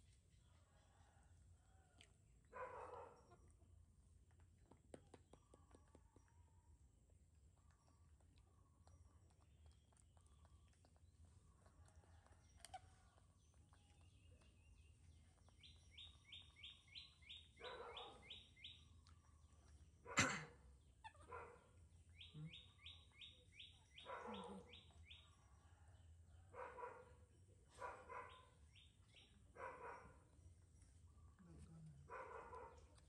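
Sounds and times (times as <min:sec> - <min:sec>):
dog barking: 0:02.5 - 0:03.4, 0:17.6 - 0:18.4, 0:20.0 - 0:21.7, 0:24.0 - 0:24.8, 0:26.5 - 0:28.5, 0:29.5 - 0:30.3, 0:32.0 - 0:33.0
bird chirping: 0:07.6 - 0:20.2, 0:20.8 - 0:25.7, 0:27.7 - 0:32.8.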